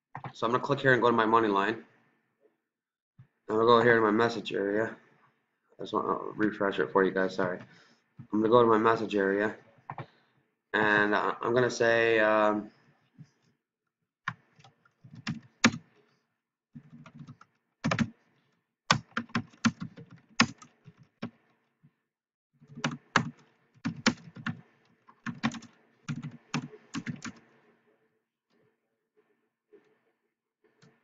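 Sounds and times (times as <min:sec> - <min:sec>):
keyboard typing: 0:14.3 - 0:15.9, 0:16.8 - 0:18.2, 0:18.9 - 0:21.4, 0:22.6 - 0:27.5.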